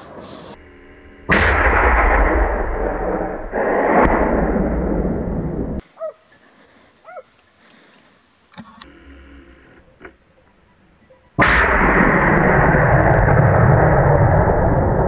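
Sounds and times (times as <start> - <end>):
rumbling echo: 0.0 - 5.8, 11.4 - 15.0
gunshots: 1.3 - 5.1, 11.4 - 14.4.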